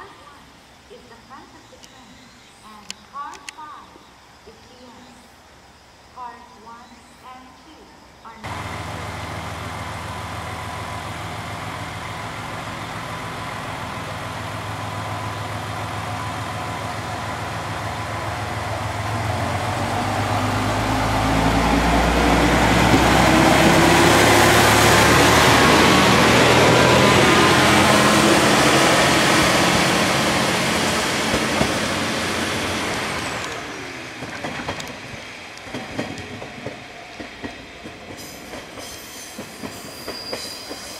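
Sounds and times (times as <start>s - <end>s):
railcar running noise: 8.2s - 40.9s
diesel railcar engine: 8.4s - 40.9s.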